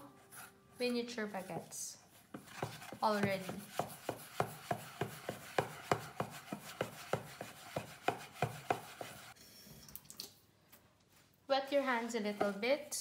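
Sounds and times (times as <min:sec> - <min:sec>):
spoon scraping dough in metal bowl: 0:00.0 - 0:09.4, 0:11.6 - 0:13.0.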